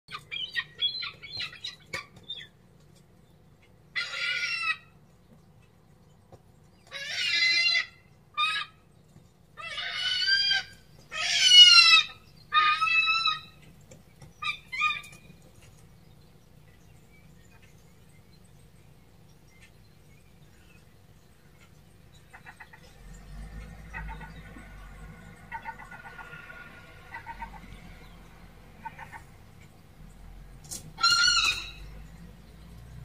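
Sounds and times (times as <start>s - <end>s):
gull calling: 23.9s - 28.0s.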